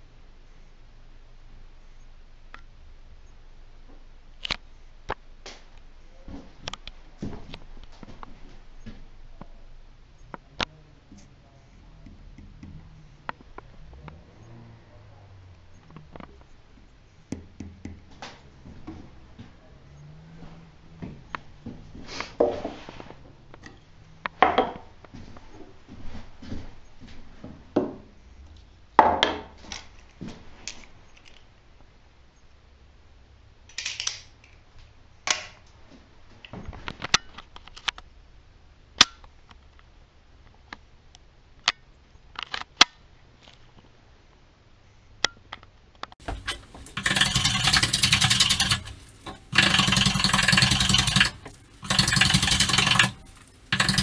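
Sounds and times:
hand tools and wood knocking: 12.0 - 13.4, 16.0 - 22.9, 46.2 - 54.0.

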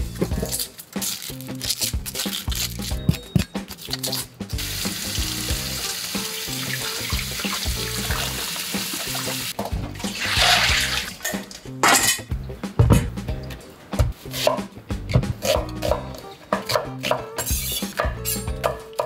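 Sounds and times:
wet colander splash: 4.6 - 12.2.

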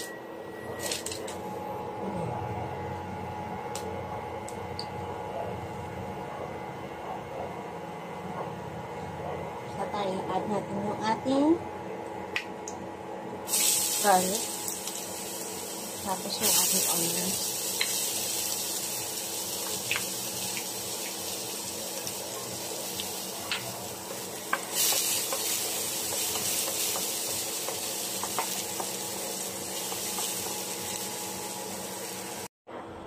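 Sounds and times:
garlic and onion sizzling in oil: 13.5 - 32.5.

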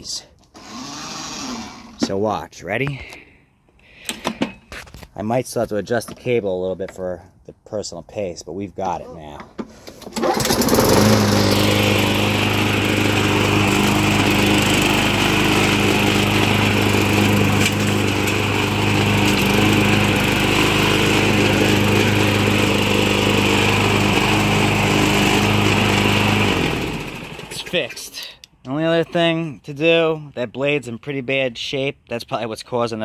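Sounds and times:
lawn mower engine running: 9.8 - 27.9.

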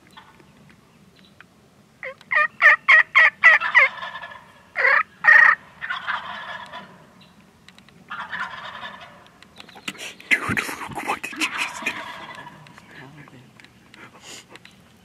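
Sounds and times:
turkeys gobbling: 2.0 - 7.2, 8.1 - 13.1.

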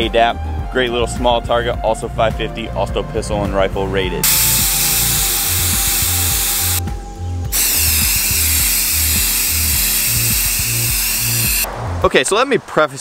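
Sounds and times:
aerosol spray can hissing: 4.2 - 6.8, 7.5 - 11.7.

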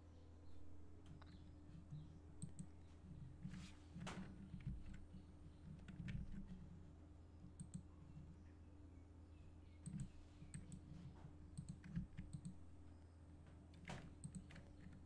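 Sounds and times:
low electrical hum: 0.0 - 15.0
mouse and keyboard clicks: 7.6 - 7.9, 9.8 - 10.8, 11.6 - 12.6, 13.8 - 15.0.

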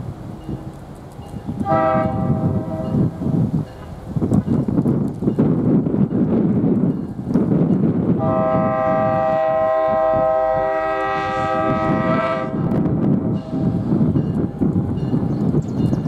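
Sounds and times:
train rumbling: 0.0 - 16.0
train horn blast: 1.6 - 3.2, 8.2 - 13.8.

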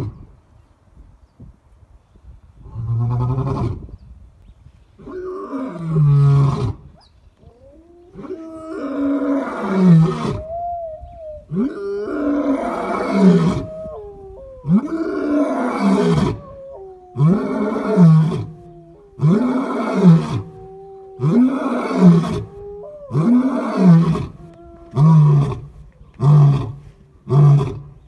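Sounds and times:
lion roaring: 11.5 - 14.0, 14.6 - 27.8.

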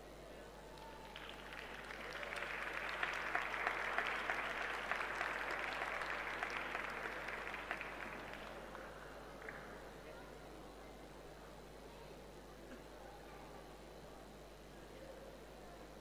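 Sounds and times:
audience applauding: 0.8 - 9.6.

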